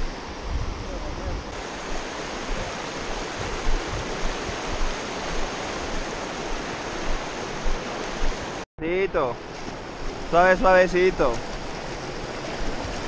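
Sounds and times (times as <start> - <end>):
wind thumps on microphone: 0.0 - 8.6
river rushing over rapids: 1.5 - 8.6, 9.2 - 13.0.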